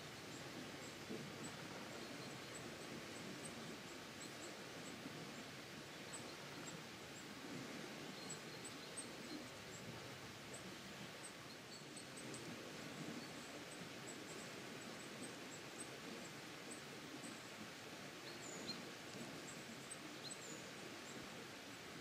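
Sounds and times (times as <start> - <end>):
steady outdoor hiss: 0.0 - 22.0.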